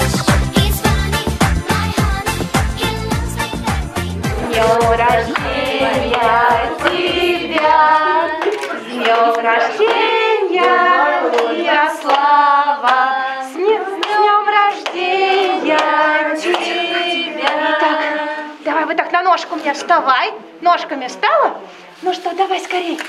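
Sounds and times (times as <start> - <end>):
people clapping in time: 0.0 - 1.7, 4.3 - 13.2, 13.9 - 18.2
backing track with beat: 0.0 - 8.6
group singing birthday song: 0.0 - 20.0.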